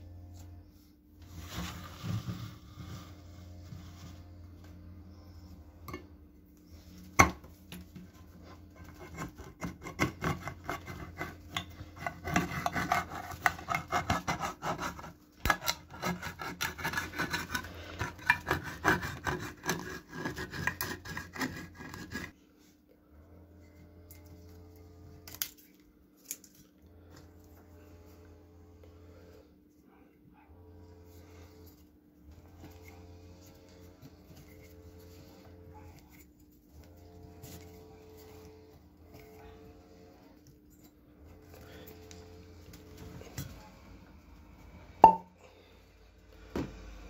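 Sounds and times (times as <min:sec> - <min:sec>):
can opener rasping metal cuts: 0:08.9 - 0:22.4.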